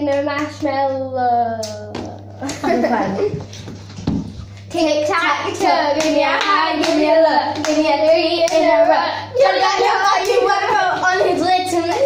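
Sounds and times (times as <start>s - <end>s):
girls singing clapping rhyme: 4.7s - 12.0s.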